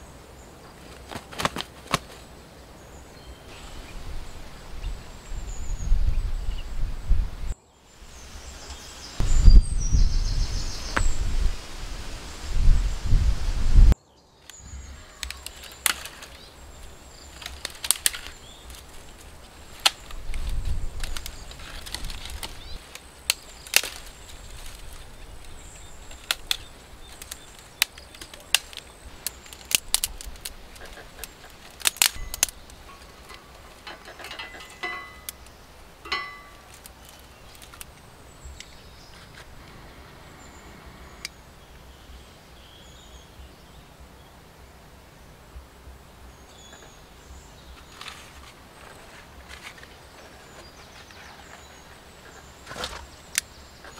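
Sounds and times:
branches rustling: 0.0 - 53.9
dry sticks snapping: 0.9 - 2.2, 14.4 - 39.8, 52.3 - 53.9.

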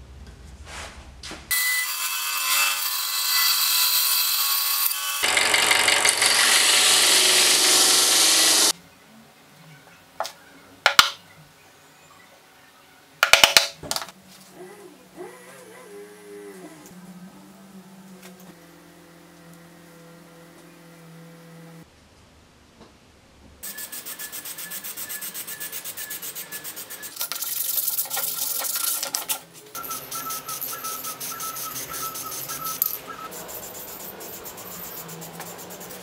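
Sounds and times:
spray paint can hissing: 23.6 - 29.0, 29.8 - 36.0.

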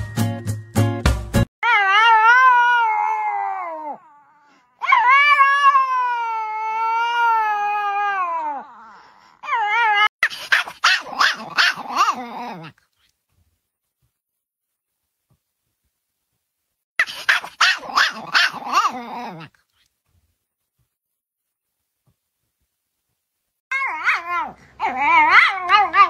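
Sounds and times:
dog howling: 1.6 - 10.1, 23.7 - 26.0
small dog yapping: 9.4 - 12.7, 17.0 - 19.5, 23.7 - 26.0.

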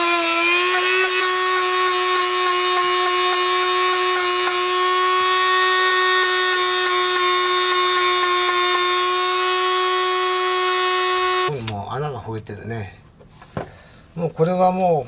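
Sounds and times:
rotary tool sanding whine: 0.0 - 11.6.

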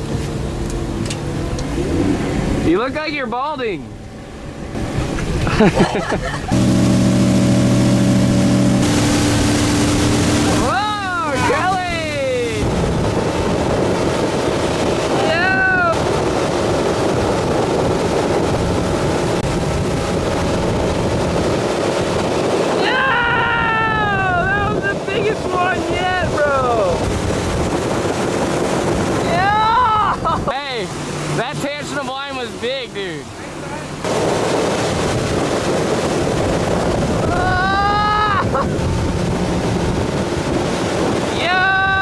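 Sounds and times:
boat engine rushing: 0.0 - 42.0
churning wake: 0.0 - 42.0
wind buffeting microphone: 0.0 - 42.0
person whooping: 10.6 - 12.6, 22.8 - 24.5, 29.4 - 30.2, 37.2 - 38.7
long shout with falling pitch: 22.8 - 24.6, 37.2 - 38.6.

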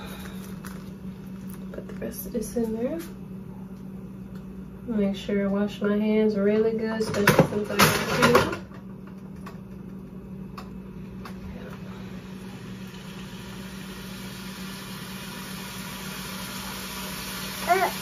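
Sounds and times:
beef sizzling in a skillet: 12.6 - 18.0.

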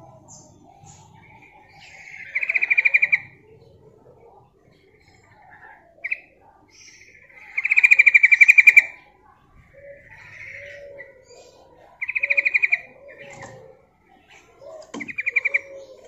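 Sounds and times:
bulbul trilling call: 0.0 - 3.4, 6.0 - 9.0.

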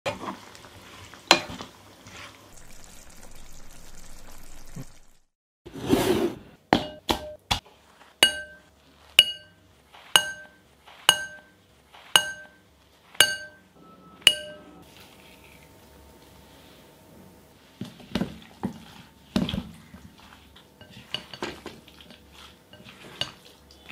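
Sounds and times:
spoon tapping glass bowl: 8.2 - 9.6, 10.2 - 11.5, 12.2 - 12.6, 13.2 - 13.7, 14.3 - 14.7.

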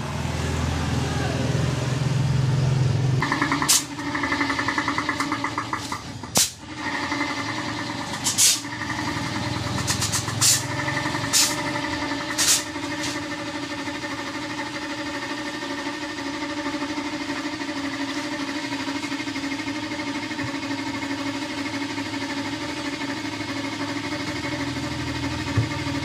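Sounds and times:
air compressor running: 0.0 - 26.0
air hissing from hose nozzle: 8.2 - 8.6.

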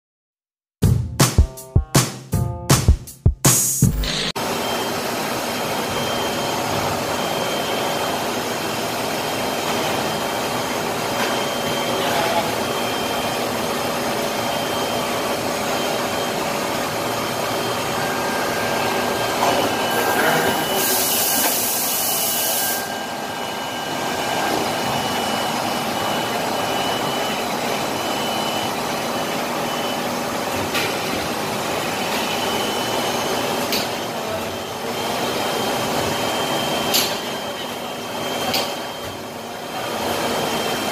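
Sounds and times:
factory machinery running: 3.8 - 40.9
hiss: 20.8 - 22.8.

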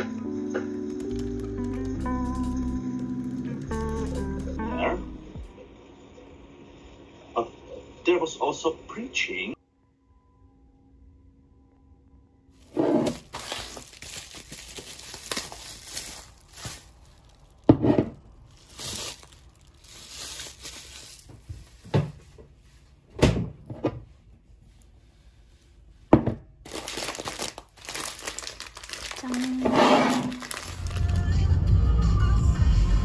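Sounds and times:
plastic packaging crinkling: 0.7 - 4.7, 12.6 - 22.3, 26.6 - 31.4.

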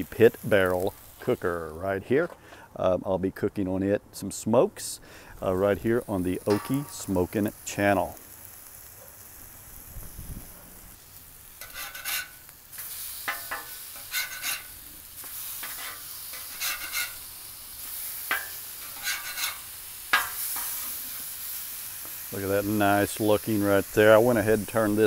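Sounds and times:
chicken sizzling on a griddle: 0.0 - 1.9, 5.3 - 25.0
metal spatula scraping steel: 11.6 - 17.3, 18.2 - 21.0.

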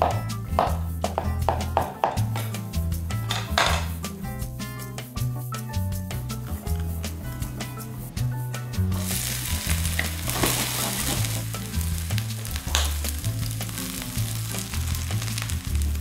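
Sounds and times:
background music with bass line: 0.0 - 16.0
food sizzling in hot oil: 9.0 - 16.0.

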